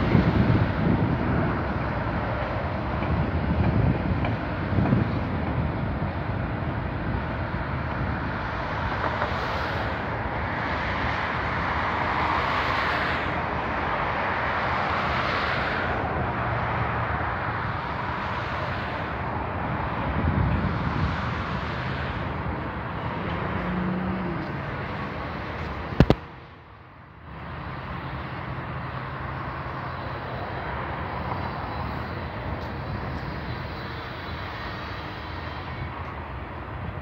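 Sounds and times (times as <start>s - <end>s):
freight train wheels rumbling on rails: 0.0s - 37.0s.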